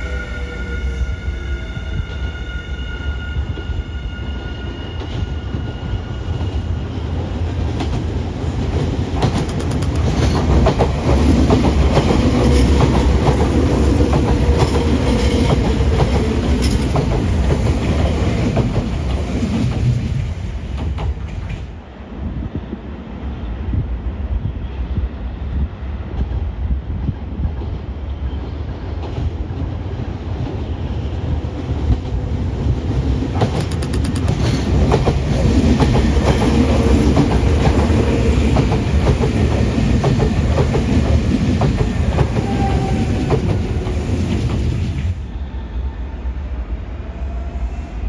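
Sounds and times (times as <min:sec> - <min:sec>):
train rumble: 0:00.0 - 0:48.0
train wheels clacking over rail joints: 0:08.8 - 0:20.0, 0:33.3 - 0:44.7.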